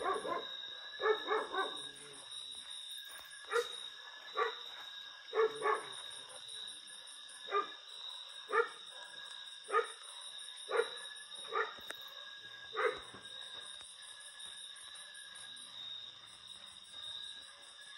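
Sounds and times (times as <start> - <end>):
dog barking: 0.0 - 1.9, 3.5 - 3.8, 4.4 - 4.6, 5.3 - 6.4, 7.5 - 7.8, 8.5 - 10.0, 10.7 - 11.8, 12.8 - 13.1.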